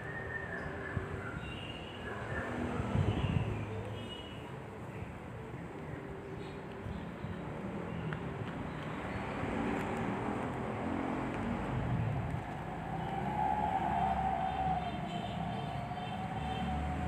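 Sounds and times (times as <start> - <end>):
passing road traffic: 0.0 - 17.0.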